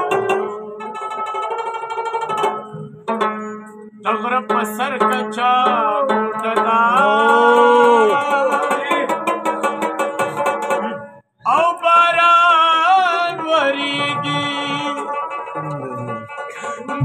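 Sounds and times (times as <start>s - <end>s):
plucked lute: 0.0s - 17.0s
man singing: 4.0s - 9.5s, 10.7s - 17.0s.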